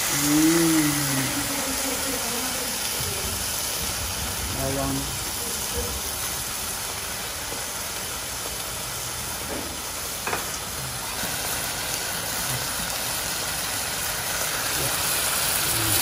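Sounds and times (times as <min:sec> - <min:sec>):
meat sizzling in a frying pan: 0:00.0 - 0:16.0.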